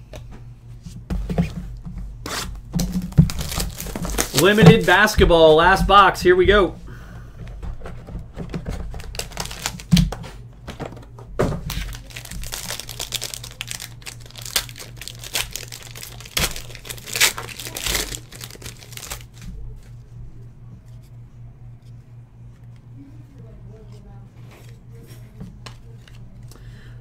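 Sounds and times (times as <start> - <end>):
faint steady hum: 0.0 - 27.0
pack wrapper crinkling and tearing: 2.8 - 5.1, 8.9 - 10.2, 11.7 - 19.6.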